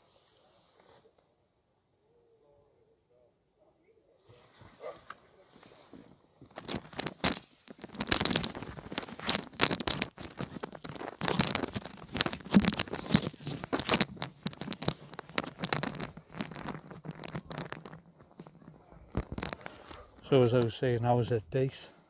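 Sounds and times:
close rustling and crinkling: 0:04.2 - 0:21.9.

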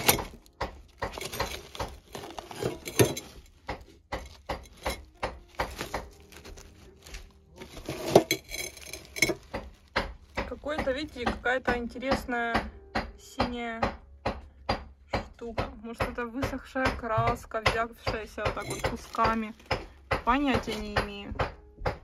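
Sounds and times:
rags rustling in metal box: 0:00.0 - 0:11.2, 0:18.6 - 0:19.8
knocks against metal and glass: 0:00.0 - 0:22.0.

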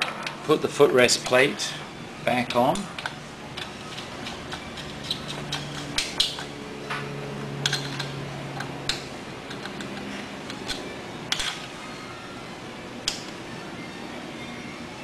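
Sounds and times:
metal clicks and taps: 0:07.6 - 0:11.5.

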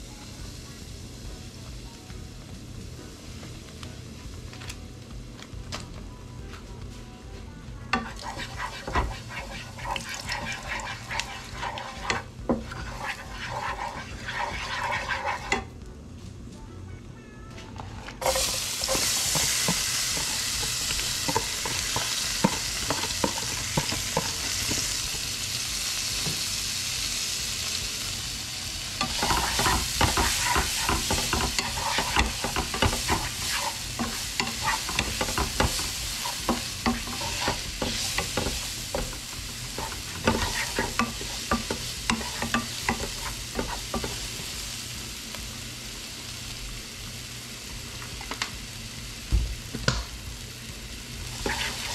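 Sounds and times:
vegetables sizzling in oil: 0:07.9 - 0:15.7, 0:18.2 - 0:51.9
wooden spatula scraping pan: 0:08.0 - 0:15.7, 0:29.0 - 0:44.2, 0:51.4 - 0:51.9.

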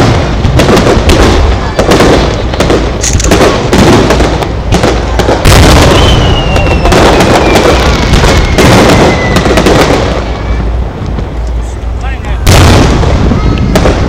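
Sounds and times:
firework shells booming: 0:00.0 - 0:14.0
whistle sliding down in pitch: 0:05.9 - 0:07.6.

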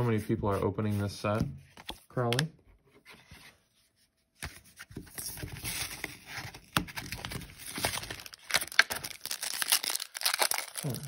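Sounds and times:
cards and plastic packaging rustling: 0:04.4 - 0:11.0.

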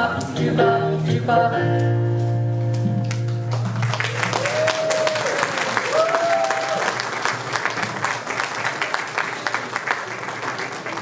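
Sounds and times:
audience applauding: 0:03.5 - 0:11.0.

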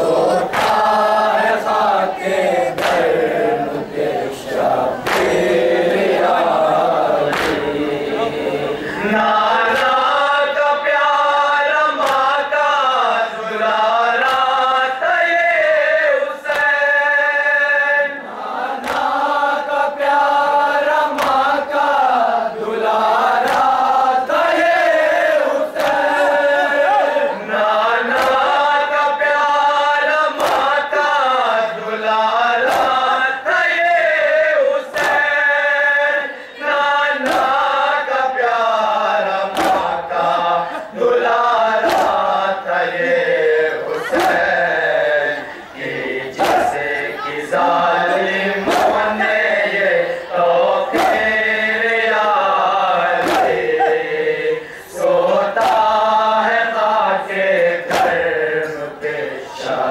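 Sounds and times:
men chanting in unison: 0:00.0 - 0:59.9
chest-beating slaps: 0:00.4 - 0:01.0, 0:02.7 - 0:03.1, 0:05.0 - 0:05.5, 0:07.3 - 0:07.7, 0:09.7 - 0:10.0, 0:12.0 - 0:12.3, 0:14.2 - 0:14.6, 0:18.8 - 0:19.2, 0:21.1 - 0:21.5, 0:23.4 - 0:24.4, 0:25.8 - 0:26.2, 0:28.1 - 0:28.6, 0:30.4 - 0:30.7, 0:32.6 - 0:33.0, 0:34.9 - 0:35.3, 0:37.2 - 0:37.6, 0:39.5 - 0:40.0, 0:41.8 - 0:42.3, 0:44.1 - 0:44.6, 0:46.3 - 0:47.0, 0:48.6 - 0:49.3, 0:50.9 - 0:51.4, 0:53.0 - 0:54.2, 0:55.6 - 0:56.0, 0:57.6 - 0:58.8.

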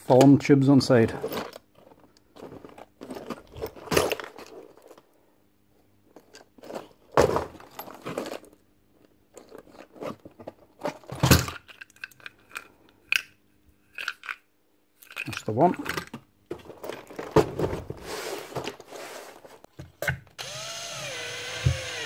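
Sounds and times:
crates shifting: 0:15.4 - 0:20.0.

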